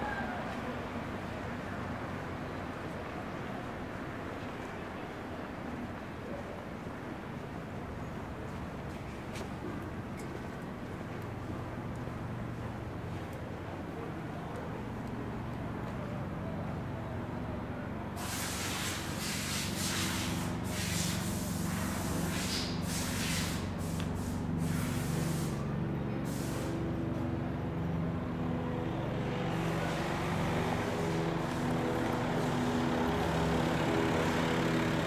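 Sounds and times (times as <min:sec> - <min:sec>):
large engine humming: 0:07.5 - 0:35.0
short air hisses: 0:18.2 - 0:26.8.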